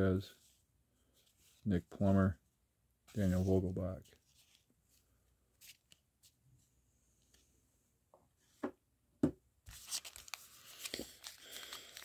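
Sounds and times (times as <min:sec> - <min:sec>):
trading cards handled: 0:03.1 - 0:06.4, 0:09.7 - 0:12.0
plastic wrapper crinkling: 0:09.7 - 0:12.0.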